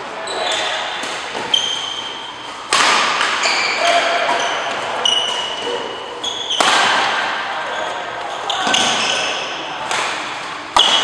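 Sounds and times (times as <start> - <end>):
shoes squeaking on court: 0.2 - 2.5, 3.4 - 6.7, 7.6 - 9.4
rackets hitting shuttlecock: 0.4 - 5.6, 6.4 - 7.4, 9.8 - 11.0.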